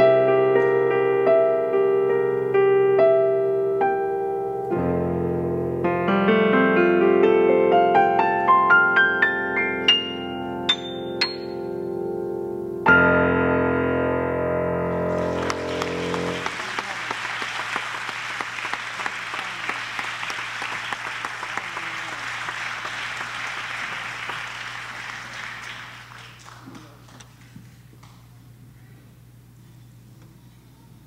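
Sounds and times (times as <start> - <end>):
electronic keyboard chord: 0.0 - 16.5
audience applause: 14.9 - 27.5.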